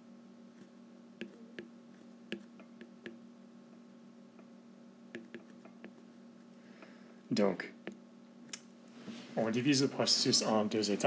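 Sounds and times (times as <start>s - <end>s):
faint steady hum: 0.0s - 11.0s
stylus tapping on glass screen: 1.2s - 1.7s, 2.3s - 3.2s, 5.1s - 6.0s.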